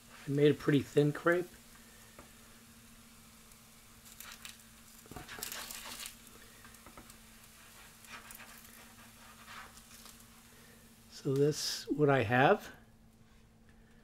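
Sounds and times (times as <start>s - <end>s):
spatula scraping crepe off hot plate: 4.0s - 10.4s.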